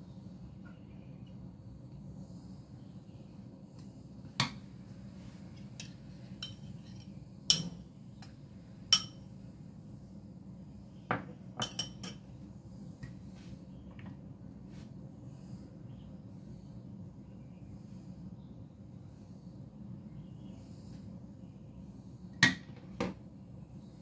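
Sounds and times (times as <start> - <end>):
utensils clinking on dishes: 5.8 - 7.8, 11.6 - 12.2.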